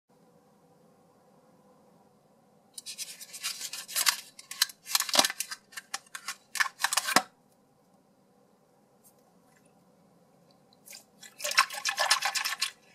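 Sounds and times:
plastic packaging crinkling: 2.8 - 7.3.

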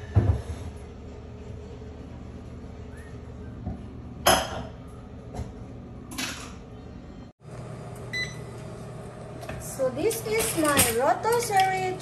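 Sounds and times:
appliance hum: 0.0 - 12.0
kitchenware clattering: 10.0 - 12.0.

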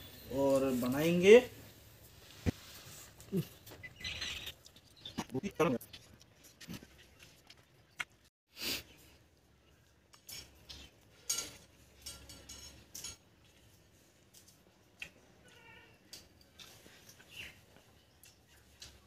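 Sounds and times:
chewing sounds: 3.2 - 8.3, 13.4 - 15.6, 16.2 - 19.0.

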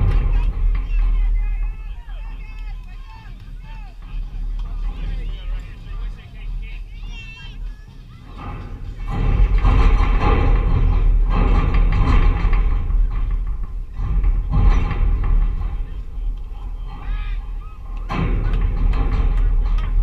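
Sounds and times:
spectators shouting and cheering: 0.0 - 9.4, 16.3 - 20.0.

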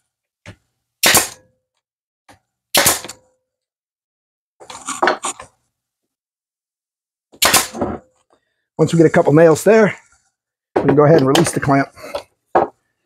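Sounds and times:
nail gun firing into wood: 1.0 - 1.5, 2.7 - 3.2, 7.4 - 8.0.

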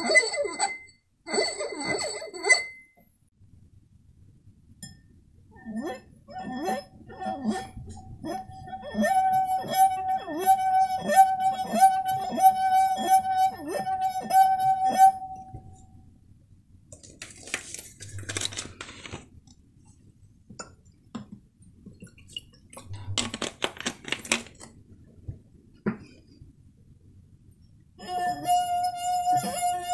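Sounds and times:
singing glass ringing note: 8.6 - 15.8, 28.0 - 29.9.

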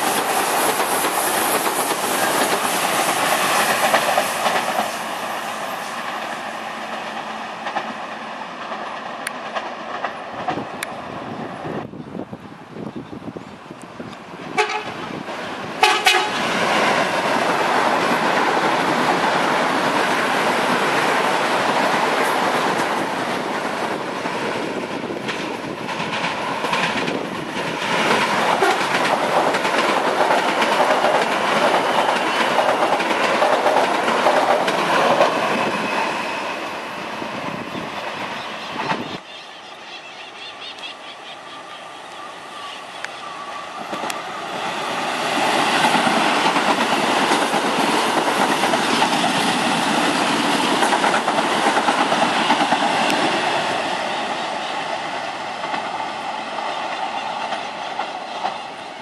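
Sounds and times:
train wheels rumbling on rails: 0.0 - 40.4, 41.2 - 59.0
train horn: 14.5 - 15.0, 15.8 - 16.5, 28.6 - 29.0.

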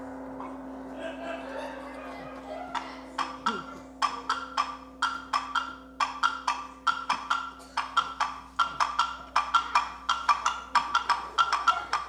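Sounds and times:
wood blocks knocking: 3.2 - 12.0.

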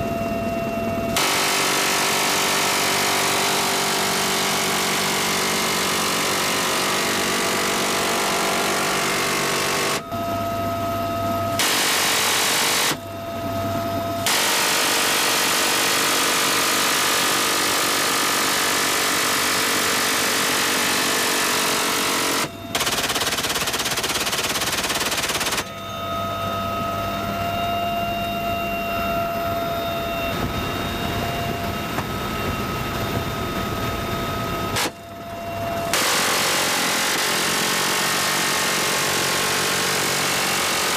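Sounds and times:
helicopter cabin noise with whine: 0.0 - 40.9
machine gun firing bursts: 1.2 - 10.0, 11.6 - 13.0, 14.3 - 25.7, 35.9 - 40.9.

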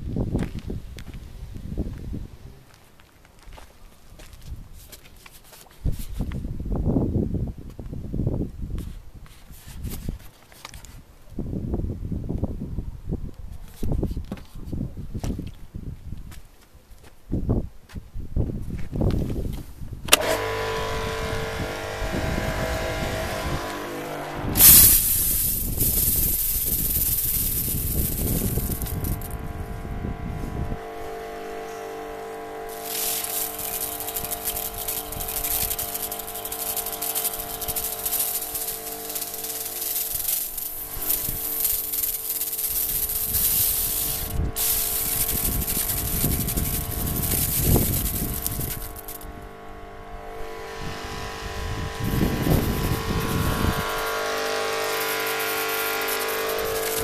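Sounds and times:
pressure washer motor humming: 20.1 - 57.0
water jet hissing: 24.5 - 29.4, 32.7 - 49.2.

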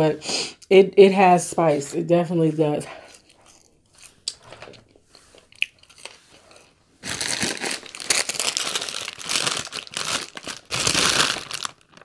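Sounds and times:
paper bag crinkling: 7.0 - 12.0.

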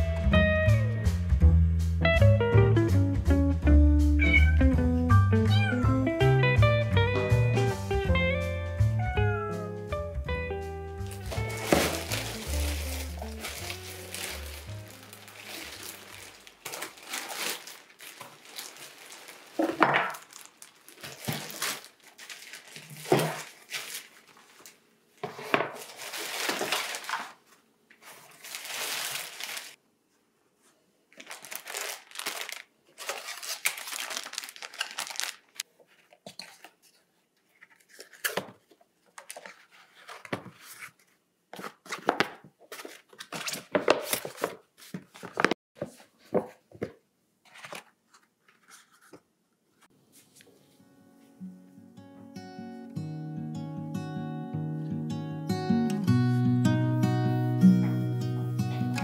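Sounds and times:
plastic bag crinkling: 11.0 - 24.8, 25.7 - 29.8, 31.1 - 36.8
items knocking when set down: 11.2 - 12.4, 19.6 - 20.2.

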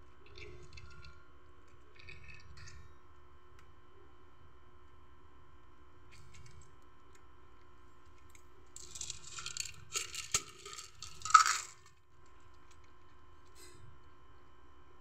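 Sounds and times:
kibble rattling onto concrete: 8.8 - 11.9.

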